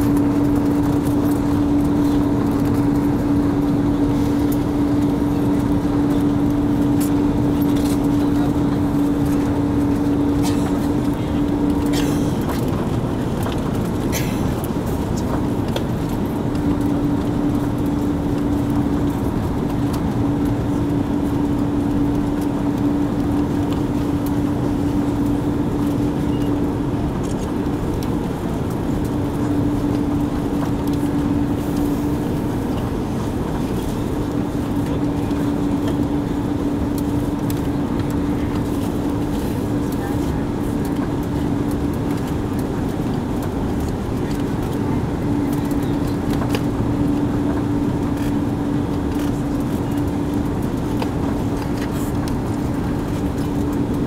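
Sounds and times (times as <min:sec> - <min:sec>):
airflow and engine rush: 0:00.0 - 0:54.0.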